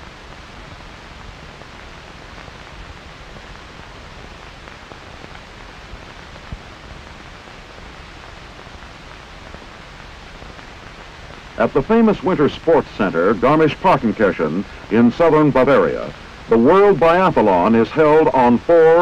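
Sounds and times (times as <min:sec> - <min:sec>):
film soundtrack hiss: 0:00.0 - 0:19.0.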